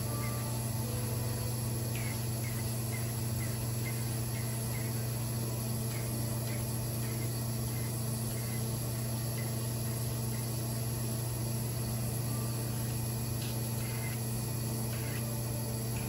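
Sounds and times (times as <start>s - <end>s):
vacuum pump humming: 0.0s - 16.0s.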